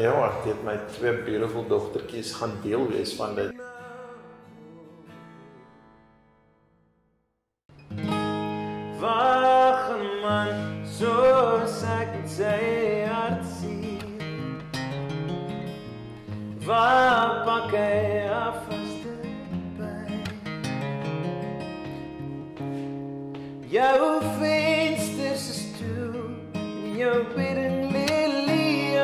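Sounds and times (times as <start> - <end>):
acoustic guitar strummed: 1.0 - 7.0, 7.7 - 29.0
man singing: 2.4 - 5.2, 8.9 - 14.6, 16.6 - 20.6, 23.6 - 29.0.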